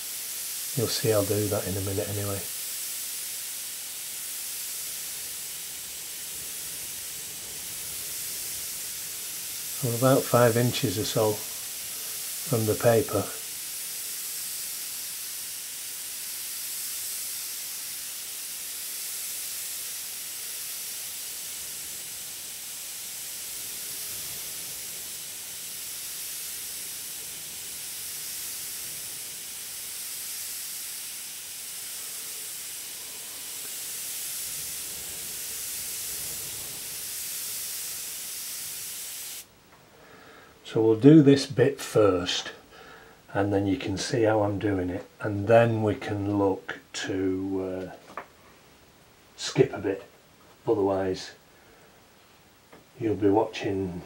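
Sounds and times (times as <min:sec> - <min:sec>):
airbrush hissing: 0:00.0 - 0:40.6.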